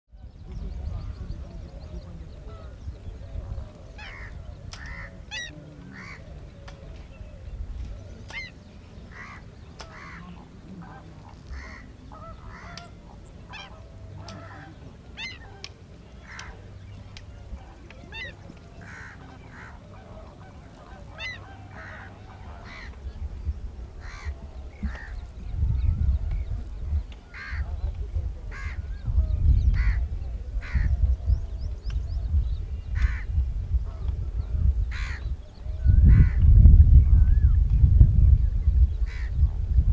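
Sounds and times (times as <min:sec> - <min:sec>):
flamingos honking: 0:08.4 - 0:23.2.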